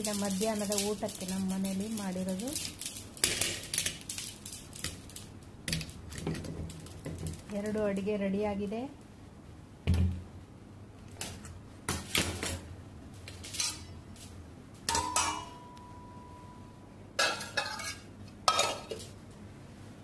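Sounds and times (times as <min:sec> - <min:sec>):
steel pots and lids clattering: 0:00.0 - 0:07.4, 0:13.4 - 0:14.0, 0:14.9 - 0:15.8, 0:17.2 - 0:19.1
steel lid ringing: 0:14.9 - 0:17.9.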